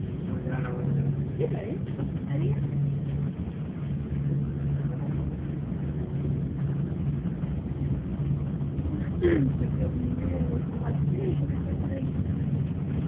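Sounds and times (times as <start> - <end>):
bus engine and road noise: 0.0 - 13.0.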